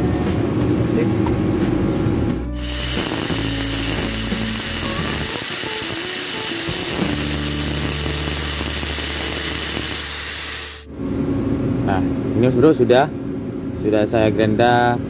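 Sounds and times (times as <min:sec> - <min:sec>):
background music: 0:01.4 - 0:09.1
angle grinder whining: 0:02.6 - 0:10.9.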